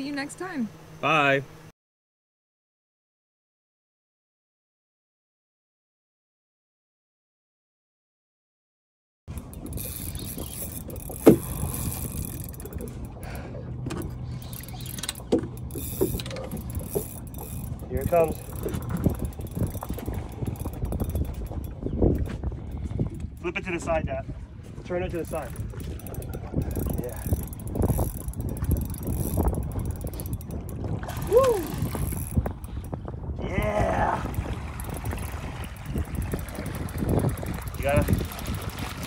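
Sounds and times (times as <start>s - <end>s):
fishing reel clicking and whirring: 9.3s - 23.5s, 25.1s - 33.0s, 34.3s - 39.0s
wind rumble on microphone: 9.3s - 39.0s.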